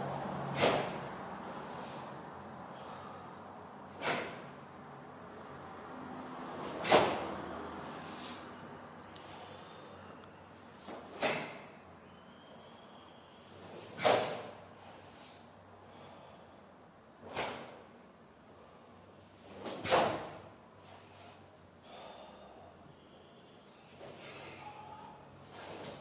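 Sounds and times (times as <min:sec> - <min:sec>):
sharp forceful exhalations: 0:00.0 - 0:05.8, 0:06.5 - 0:10.2, 0:18.6 - 0:26.0.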